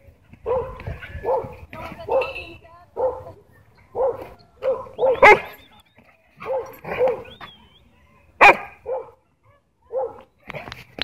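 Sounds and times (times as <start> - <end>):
dog barking: 0.4 - 1.5, 3.0 - 3.3, 4.0 - 5.5, 6.4 - 7.3, 8.4 - 10.2.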